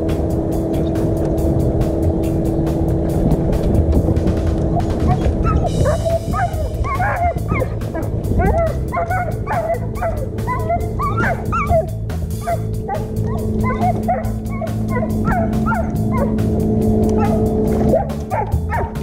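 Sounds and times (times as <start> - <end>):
background music with steady beat: 0.0 - 19.0
dog whining and yipping: 4.7 - 16.4, 17.2 - 19.0.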